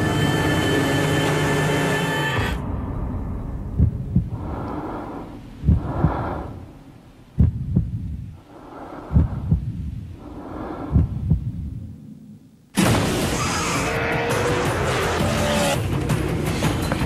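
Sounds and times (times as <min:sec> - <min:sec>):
heartbeat thumps: 0:02.6 - 0:12.0
person breathing: 0:04.2 - 0:07.2, 0:08.3 - 0:12.4.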